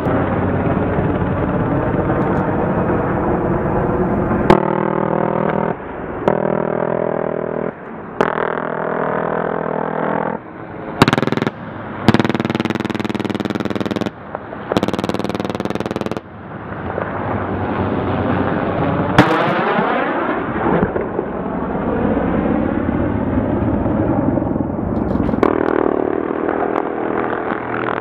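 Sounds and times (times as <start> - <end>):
helicopter rotor and engine: 0.0 - 28.0
helicopter gun rapid fire: 4.5 - 16.4
sharp crack: 7.6 - 10.4, 11.0 - 17.2, 18.5 - 21.3.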